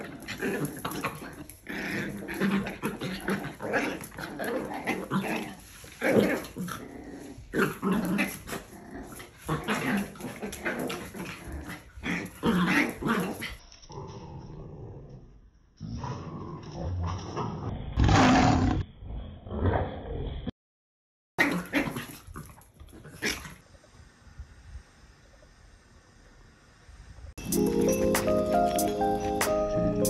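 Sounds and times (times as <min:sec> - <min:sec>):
dogs growling and yipping: 0:00.0 - 0:20.5, 0:21.4 - 0:23.6.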